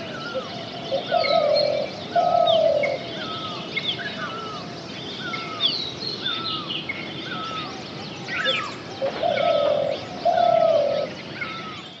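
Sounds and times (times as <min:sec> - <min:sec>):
low cooing notes: 0:09.0 - 0:11.1.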